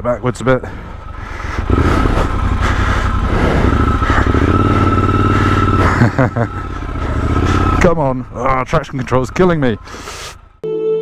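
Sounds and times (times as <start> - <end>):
man talking: 0.0 - 0.9, 7.6 - 10.3
motorcycle engine revving: 0.0 - 10.6.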